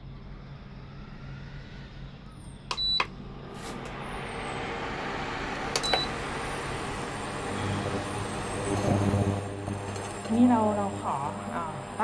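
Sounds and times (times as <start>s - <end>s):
cooling fan rushing: 0.4s - 12.0s
induction cooker beeping: 2.7s - 3.1s, 5.8s - 12.0s.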